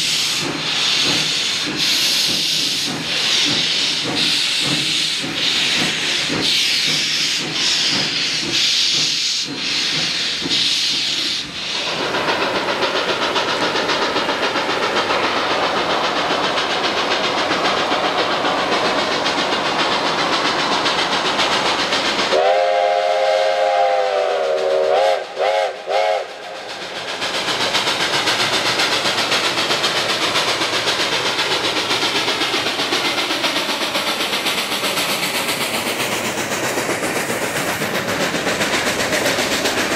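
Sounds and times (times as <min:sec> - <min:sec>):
steam hissing: 0:00.0 - 0:39.9
steam locomotive exhaust: 0:00.0 - 0:39.9
steam whistle: 0:22.3 - 0:26.6.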